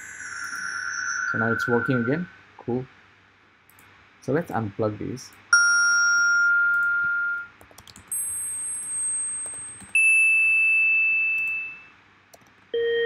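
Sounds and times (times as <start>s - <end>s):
electronic bell-like notes: 0.0s - 2.3s, 5.6s - 7.5s, 8.1s - 11.8s.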